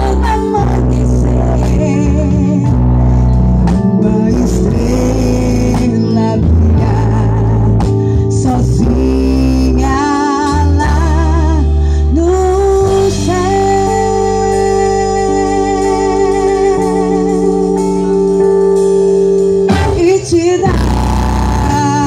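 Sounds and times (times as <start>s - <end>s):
horns and saxophone chord: 17.6s - 22.0s.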